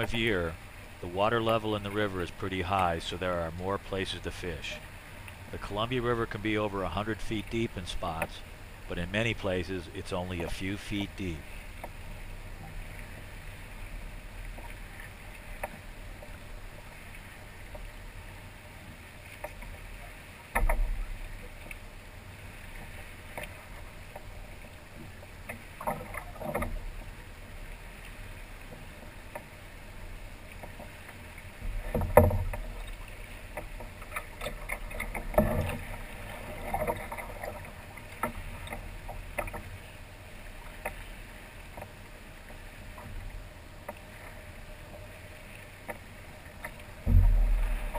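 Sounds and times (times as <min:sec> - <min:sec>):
water lapping against kayak hull: 0:00.0 - 0:47.9
knocks on kayak hull: 0:47.0 - 0:47.9.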